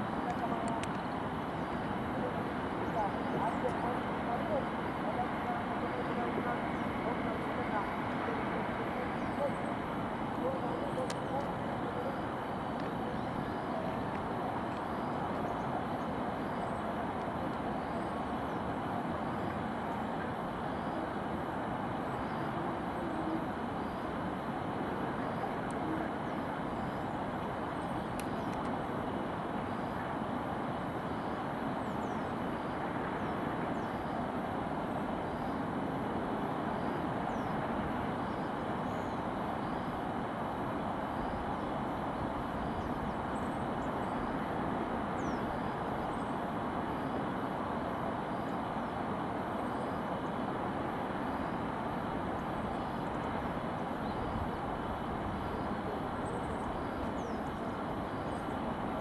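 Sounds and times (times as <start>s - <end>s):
distant city traffic hum: 0.0s - 59.0s.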